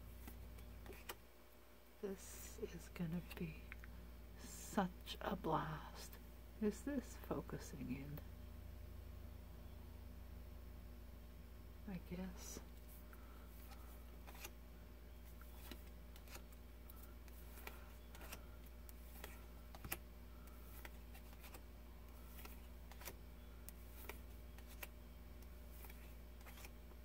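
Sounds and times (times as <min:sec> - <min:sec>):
steady low hum: 0:00.0 - 0:27.0
cards clicking and snapping: 0:17.2 - 0:21.6, 0:22.3 - 0:26.7.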